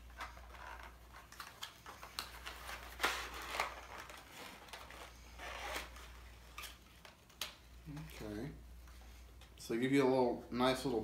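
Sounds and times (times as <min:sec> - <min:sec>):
packaging rustle: 0:00.0 - 0:07.6.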